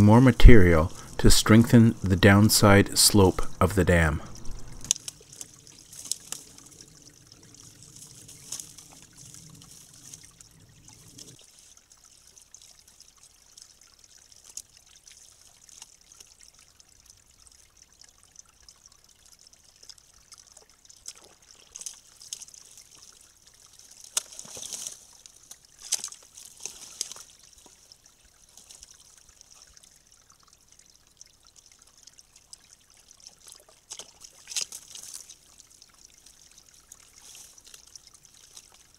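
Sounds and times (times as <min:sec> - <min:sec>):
water trickling: 0:00.0 - 0:38.9
rustles and scrapes of sticks: 0:04.4 - 0:11.8, 0:21.1 - 0:29.0, 0:33.3 - 0:35.6, 0:36.2 - 0:38.9.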